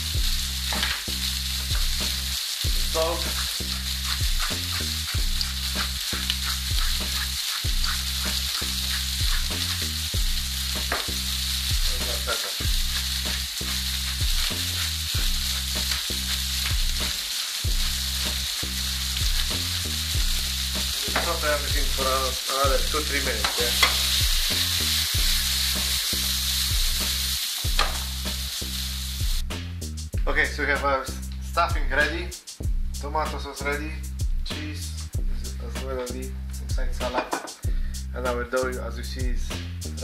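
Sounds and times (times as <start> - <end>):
food sizzling in a frying pan: 0.0 - 29.5.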